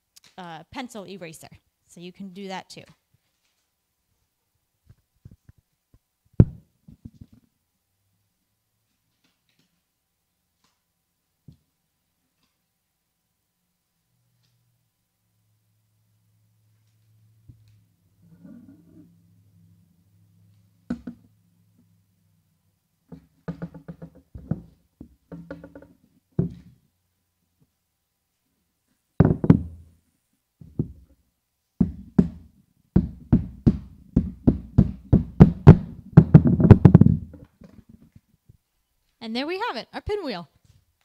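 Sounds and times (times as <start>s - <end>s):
hammer hitting nail: 31.8s - 37.2s.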